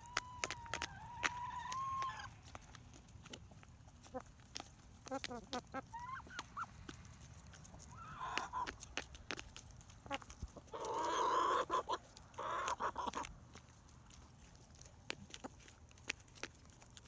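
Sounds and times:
loud harsh chicken squawk: 0:00.0 - 0:02.3, 0:08.0 - 0:08.8, 0:10.7 - 0:13.2
chicken clucking: 0:00.0 - 0:17.0.

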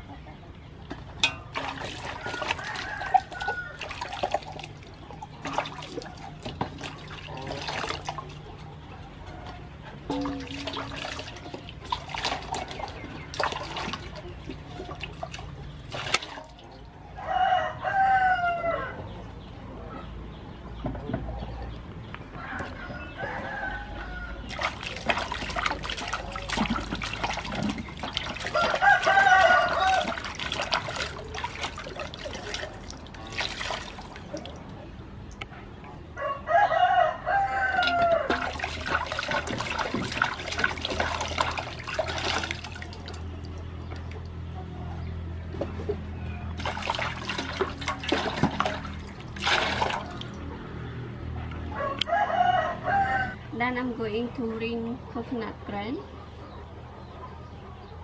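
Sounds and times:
water splashing in metal basin: 0:00.9 - 0:08.8, 0:10.0 - 0:17.0, 0:24.5 - 0:35.4, 0:37.6 - 0:44.5, 0:46.5 - 0:50.6
rooster crowing: 0:02.2 - 0:04.1, 0:17.2 - 0:19.0, 0:22.4 - 0:24.6, 0:28.5 - 0:30.2, 0:36.2 - 0:38.6, 0:51.7 - 0:53.5.

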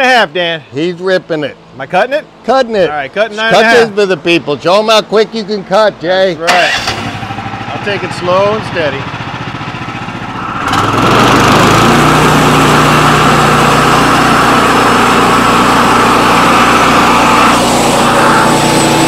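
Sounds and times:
sawmill engine revving: 0:06.4 - 0:19.0
band saw blade cutting wood: 0:10.4 - 0:19.0.

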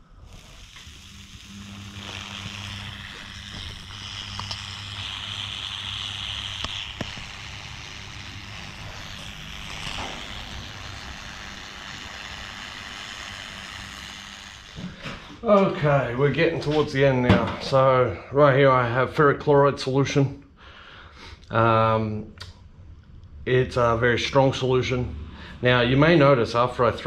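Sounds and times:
etching pad fizzing: 0:00.0 - 0:15.4
low electrical hum: 0:00.0 - 0:27.0.

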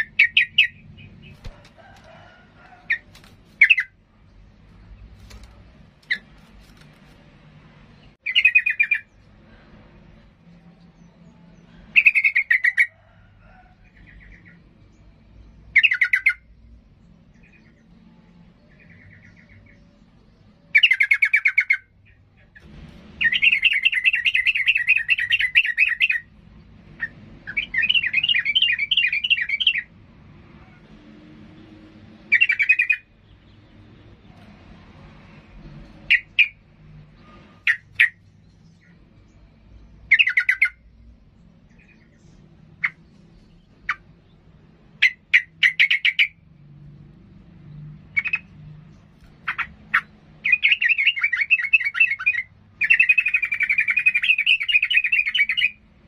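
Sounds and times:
bird chattering: 0:00.0 - 0:01.6, 0:02.8 - 0:04.0, 0:08.2 - 0:09.1, 0:23.2 - 0:26.3, 0:32.3 - 0:33.1, 0:37.6 - 0:38.2, 0:40.1 - 0:40.8, 0:42.8 - 0:43.1, 0:45.0 - 0:46.4, 0:48.1 - 0:48.6, 0:49.2 - 0:55.8.

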